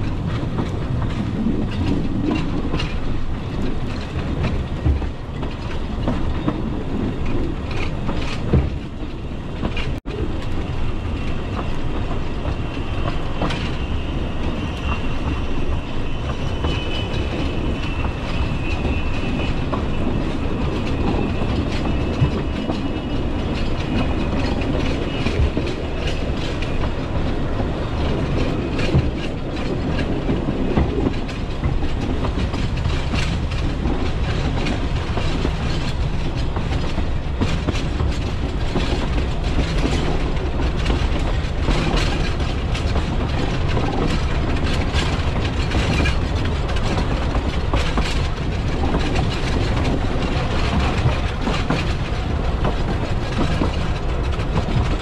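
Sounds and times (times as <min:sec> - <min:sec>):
train rumbling along track: 0:00.0 - 0:55.0
wheels clicking over rail joints: 0:00.0 - 0:55.0.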